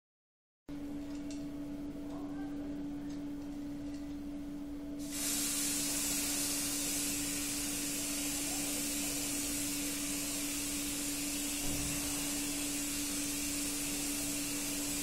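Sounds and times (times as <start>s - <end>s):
steady low hum: 0.7s - 15.0s
aerosol spray can hissing: 5.0s - 15.0s.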